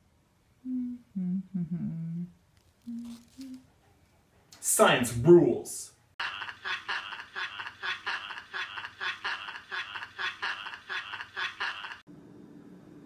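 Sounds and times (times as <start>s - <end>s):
person laughing: 6.2s - 12.0s.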